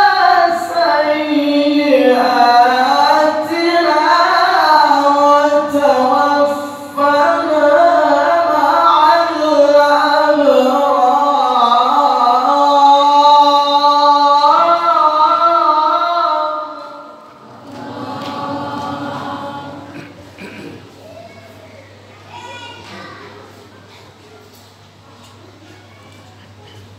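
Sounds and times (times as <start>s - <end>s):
man reciting melodically into microphone: 0.0s - 17.2s
background murmur: 17.3s - 26.9s.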